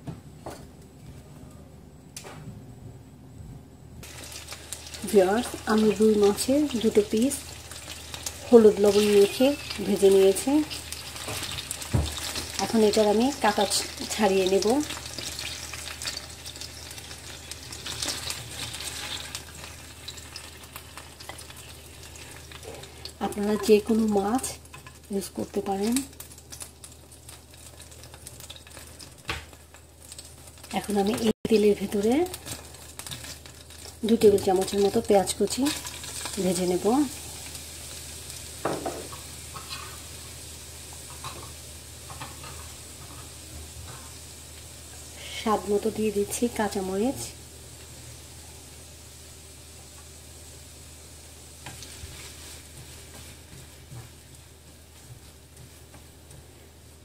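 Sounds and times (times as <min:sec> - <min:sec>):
oil sizzling in frying pan: 0:04.0 - 0:57.0
spatula moving in pan: 0:32.4 - 0:44.3, 0:51.6 - 0:57.0.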